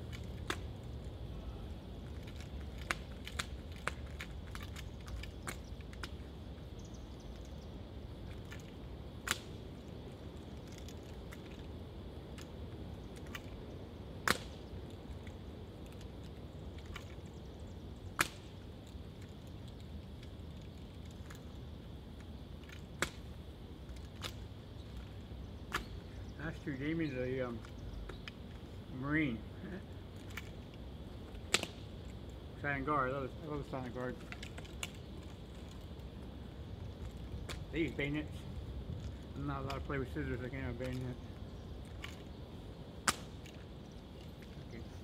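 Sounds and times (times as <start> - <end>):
low background noise: 0.0 - 45.0.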